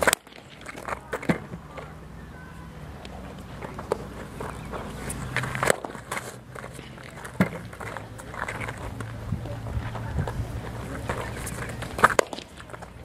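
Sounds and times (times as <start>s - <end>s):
steady low hum: 0.0s - 13.0s
footsteps shuffling on dirt: 3.1s - 13.0s.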